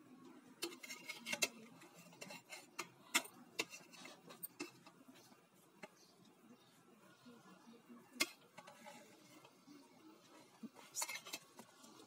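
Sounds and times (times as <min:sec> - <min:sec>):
metal spoon scraping a pot: 0:00.6 - 0:06.1, 0:08.2 - 0:09.6, 0:10.7 - 0:12.0.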